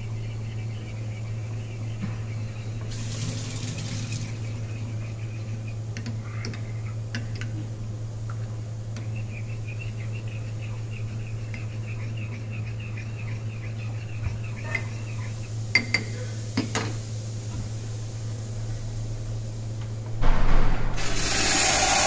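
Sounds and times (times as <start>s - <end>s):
steady low hum: 0.0s - 22.0s
spoon stirring in ceramic cup: 9.3s - 16.2s
spoon clinking against cup: 15.7s - 16.1s.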